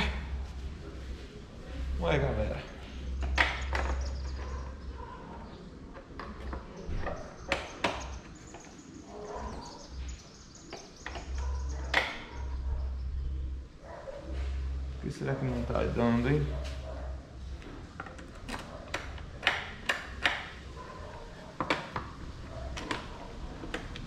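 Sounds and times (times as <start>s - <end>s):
plastic cowl clicking and knocking: 21.5s - 24.0s.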